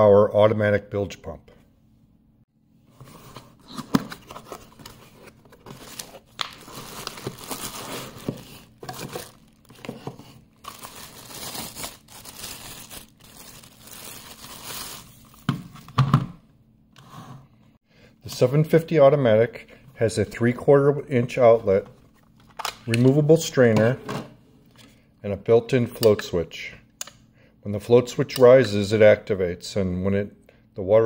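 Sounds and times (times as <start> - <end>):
plastic bag crinkling: 4.2 - 15.5.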